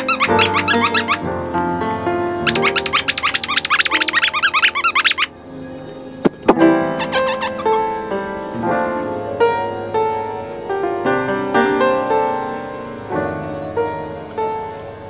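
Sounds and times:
piano melody: 0.0s - 15.0s.

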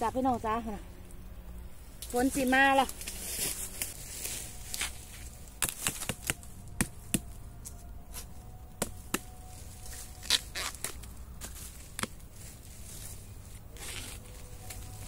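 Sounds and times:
knife chopping bamboo: 5.6s - 7.4s, 8.1s - 9.4s.

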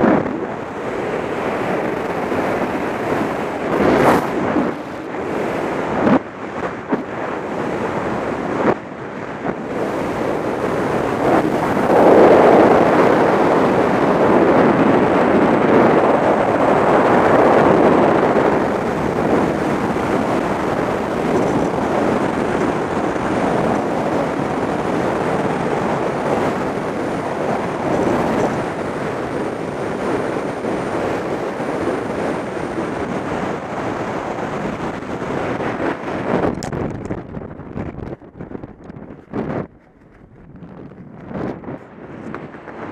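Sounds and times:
wind roaring over microphone: 0.0s - 42.9s.

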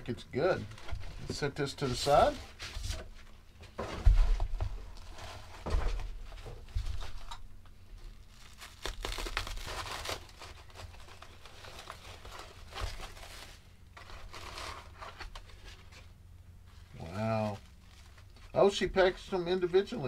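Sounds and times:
packaging crinkling and rustling: 4.0s - 20.0s.

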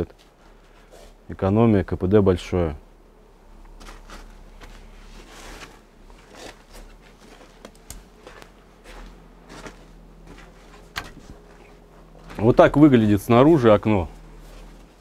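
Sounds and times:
footsteps on snow: 3.7s - 15.0s.

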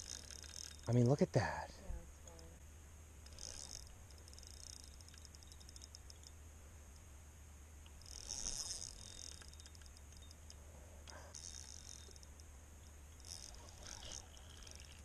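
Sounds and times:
spinning reel clicking: 0.0s - 1.0s, 3.2s - 6.4s, 7.8s - 12.5s, 13.2s - 15.0s.

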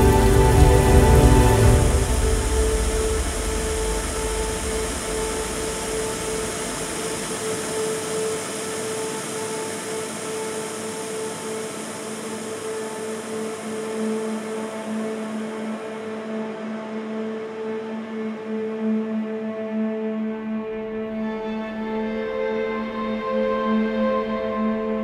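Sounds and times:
deep rumble: 0.0s - 7.2s
television static hiss: 0.0s - 16.4s
droning tones: 0.0s - 18.6s.

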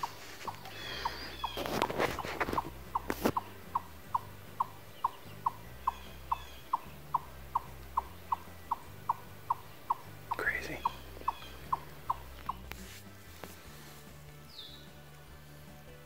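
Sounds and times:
small animal calling: 0.0s - 12.8s.

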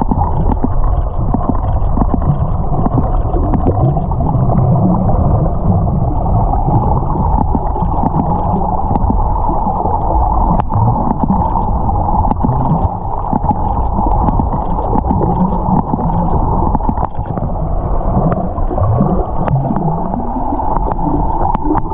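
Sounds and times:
dolphin clicks: 0.0s - 4.0s, 6.9s - 17.5s
underwater rush: 0.0s - 21.9s.

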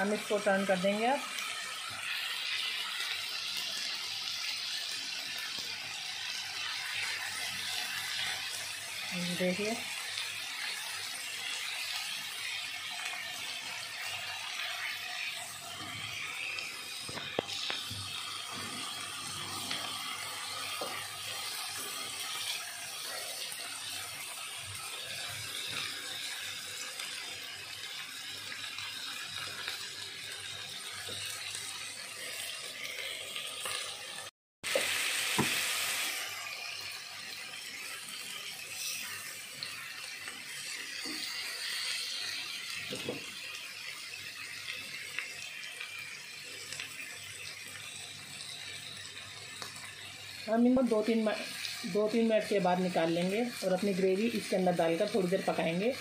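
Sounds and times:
chicken frying in oil: 0.0s - 56.0s.

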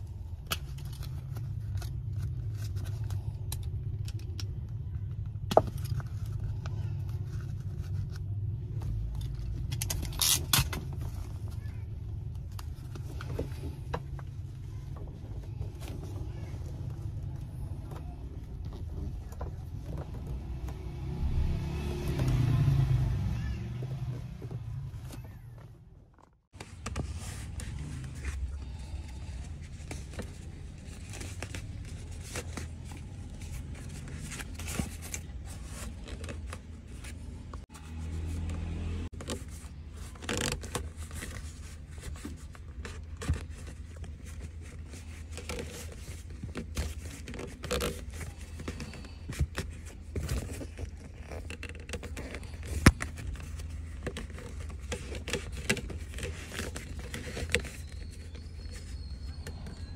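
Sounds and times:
fabric and plastic trim rustling: 24.0s - 59.9s.

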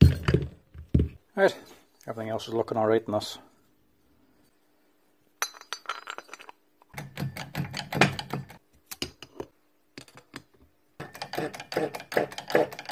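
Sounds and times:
metal parts clicking and clattering: 5.4s - 8.6s.

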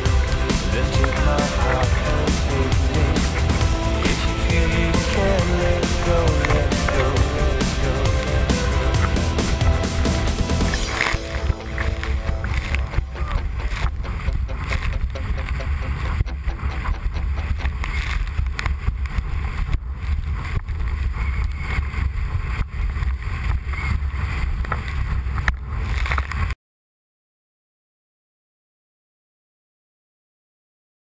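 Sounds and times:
wind rumbling on microphone: 11.4s - 26.6s.

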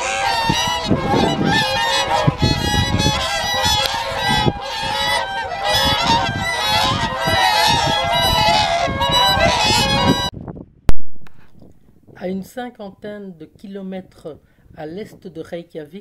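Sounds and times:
swans trumpeting honks: 0.0s - 10.3s.

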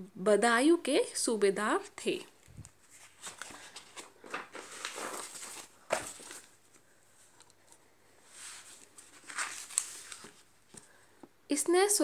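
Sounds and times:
paper rustling: 2.4s - 11.0s.

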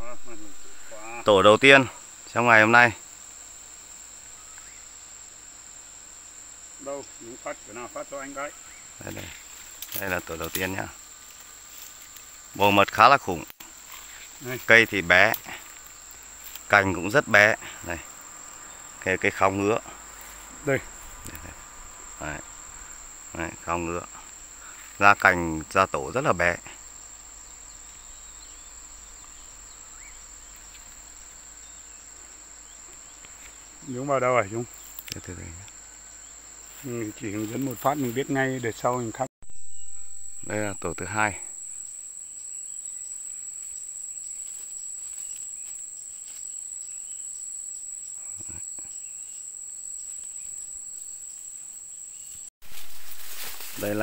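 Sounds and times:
high-pitched insect trill: 0.0s - 54.0s
faint bird chirps: 4.4s - 4.9s.

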